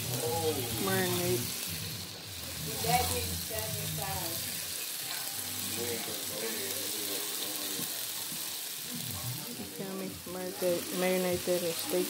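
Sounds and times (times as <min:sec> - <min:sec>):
faint voices: 0:00.0 - 0:12.0
patties sizzling in grease: 0:00.0 - 0:12.0.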